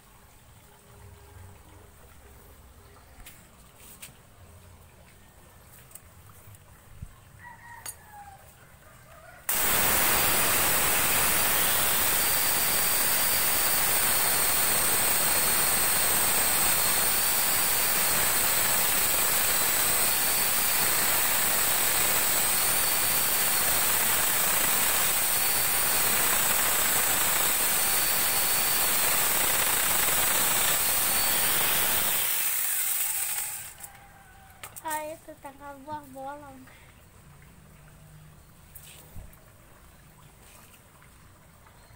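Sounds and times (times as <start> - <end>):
angle grinder high whine: 9.5 - 33.9.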